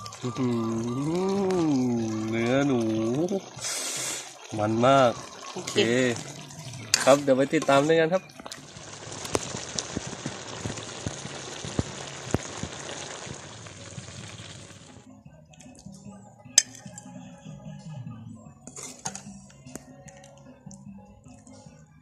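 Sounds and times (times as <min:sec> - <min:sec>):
curry boiling in a wok: 0:00.0 - 0:15.0
metal spoon clinking: 0:16.6 - 0:17.1.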